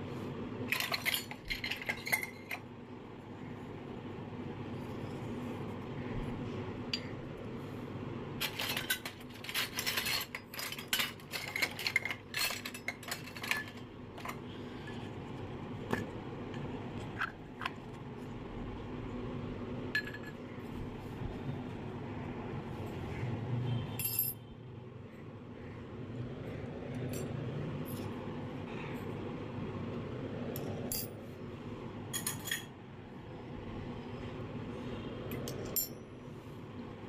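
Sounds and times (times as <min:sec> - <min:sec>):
metal toy cups clinking: 0:00.7 - 0:02.7, 0:08.4 - 0:15.2, 0:19.9 - 0:20.4, 0:32.1 - 0:32.7.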